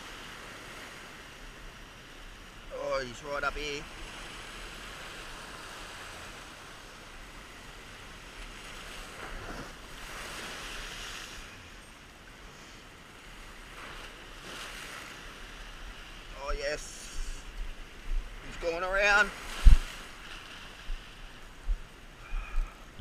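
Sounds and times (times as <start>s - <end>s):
ocean surf washing on rocks: 0.0s - 11.8s, 12.6s - 23.0s
wave crashing: 18.4s - 21.0s.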